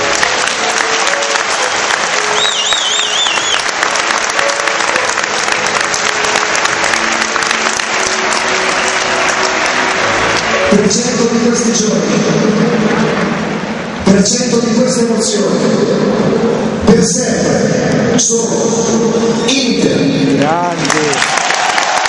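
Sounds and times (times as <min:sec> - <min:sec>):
crowd applauding: 0:00.0 - 0:11.9, 0:20.6 - 0:22.0
warbling whistle: 0:01.6 - 0:03.7.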